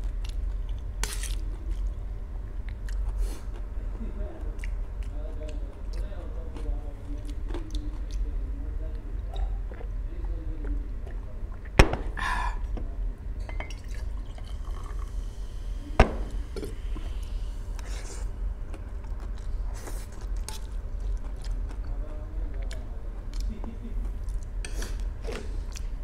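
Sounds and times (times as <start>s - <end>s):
mug knocking on table: 16.0s - 16.4s.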